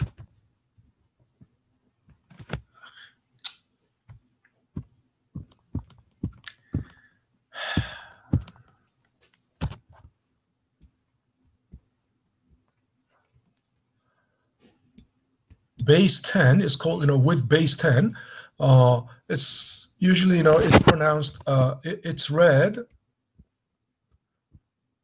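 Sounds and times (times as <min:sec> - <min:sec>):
stylus tapping on touchscreen: 0:04.1 - 0:07.0, 0:07.8 - 0:08.6.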